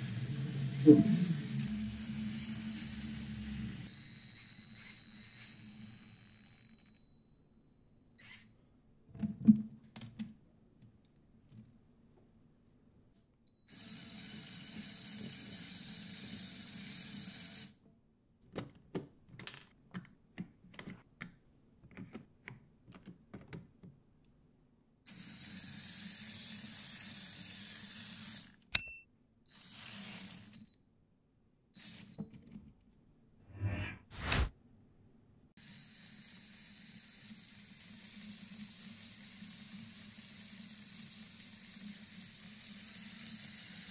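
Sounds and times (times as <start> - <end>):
small electric motor whirring: 0.0 - 6.8, 8.2 - 8.5, 13.7 - 17.7, 25.1 - 28.6, 29.5 - 30.6, 35.6 - 43.9
plastic clicks and rattles: 18.5 - 24.0.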